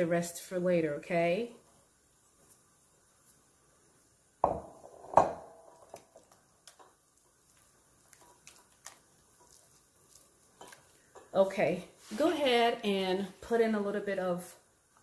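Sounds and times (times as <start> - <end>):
knocks on glass bowl: 4.4 - 5.5.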